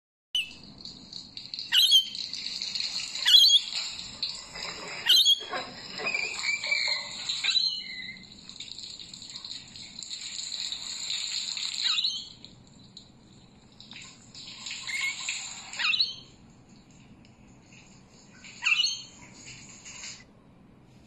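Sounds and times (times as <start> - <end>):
lorikeet chattering: 1.7 - 2.2, 5.1 - 5.5.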